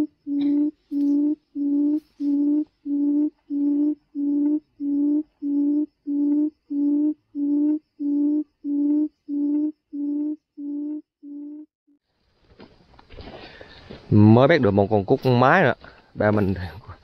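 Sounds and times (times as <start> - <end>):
bird low hooting call: 0.0 - 11.7.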